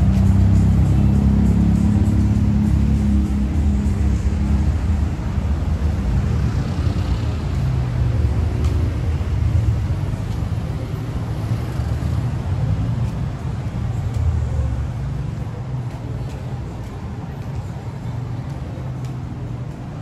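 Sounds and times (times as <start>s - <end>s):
street traffic: 0.0s - 20.0s
vehicle engine rumbling: 0.0s - 20.0s.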